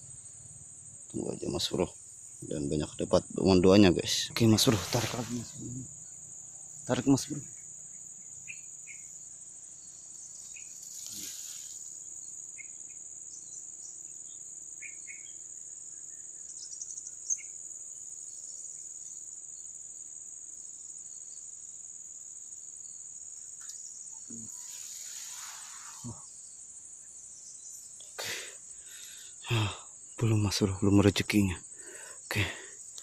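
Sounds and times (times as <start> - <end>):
insects chorus drone: 0.0 - 33.0
rustling: 4.5 - 5.7.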